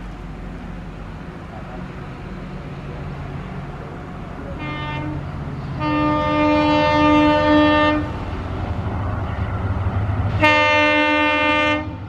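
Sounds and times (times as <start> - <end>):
diesel locomotive engine: 0.0 - 12.0
train air horn blasts: 4.6 - 8.2, 10.4 - 12.0.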